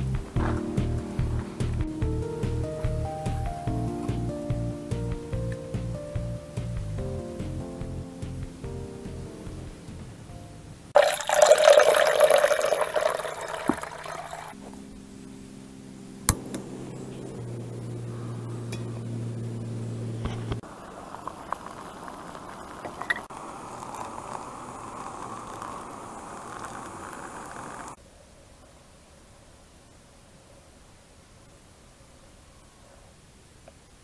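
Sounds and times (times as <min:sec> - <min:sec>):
water filling a mug: 0:11.0 - 0:14.6, 0:20.7 - 0:28.0
water poured into metal pot: 0:11.0 - 0:14.6, 0:20.8 - 0:27.6.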